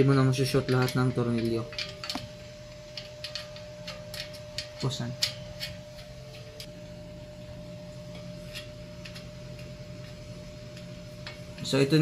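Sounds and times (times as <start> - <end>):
steady low hum: 0.0 - 12.0
small metal parts clicking: 2.9 - 6.7.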